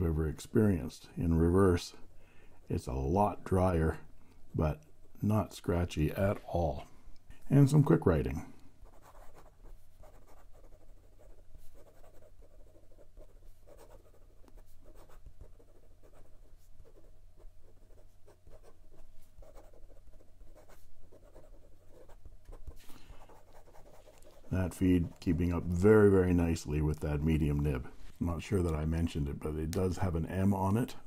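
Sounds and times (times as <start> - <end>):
fountain pen writing on paper: 8.9 - 24.4.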